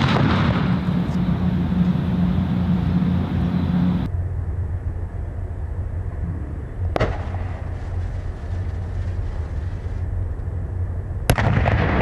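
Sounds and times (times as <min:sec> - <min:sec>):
firework bang: 0:00.0 - 0:01.0, 0:06.9 - 0:09.9, 0:11.3 - 0:12.0
firework crackling: 0:00.0 - 0:01.9, 0:07.0 - 0:10.1
low rumble: 0:00.0 - 0:12.0
firework launch pop: 0:07.0 - 0:07.6.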